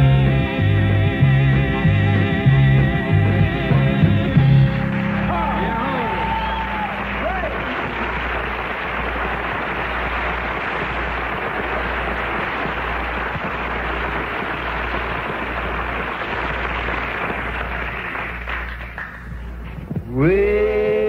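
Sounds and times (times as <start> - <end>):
audience applauding: 4.4 - 21.0.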